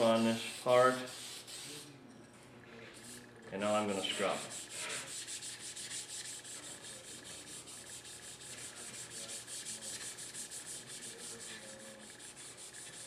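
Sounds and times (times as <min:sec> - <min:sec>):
abrasive pad scrubbing: 0:03.7 - 0:13.0.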